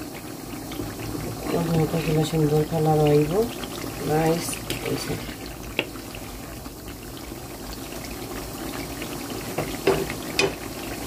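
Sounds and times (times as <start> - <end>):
sauce bubbling in a frying pan: 0.0 - 11.0
wooden spoon knocking: 9.6 - 10.6.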